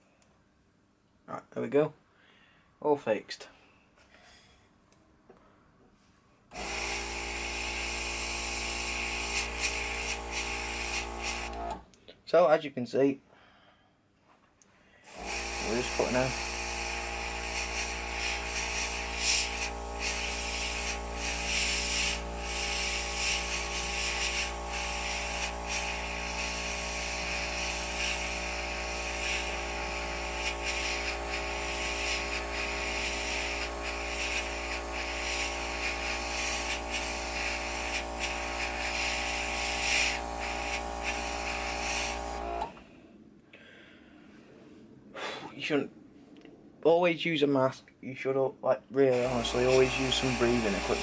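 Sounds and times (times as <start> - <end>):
compressor motor hum: 6.5 - 11.8, 15.1 - 42.8, 49.1 - 51.0
airbrush hissing: 6.6 - 11.8, 15.1 - 42.7, 49.1 - 51.0.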